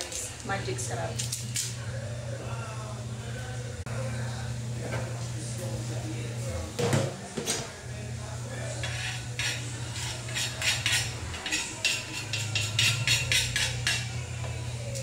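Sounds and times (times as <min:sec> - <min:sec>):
steady low hum: 0:00.3 - 0:06.8
spoon scraping wooden board: 0:08.8 - 0:14.1.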